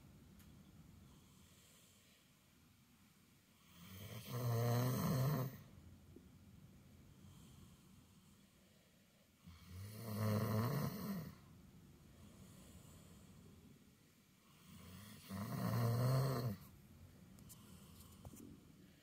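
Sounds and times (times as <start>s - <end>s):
dog snoring: 3.6s - 5.7s, 9.5s - 11.4s, 14.5s - 16.7s.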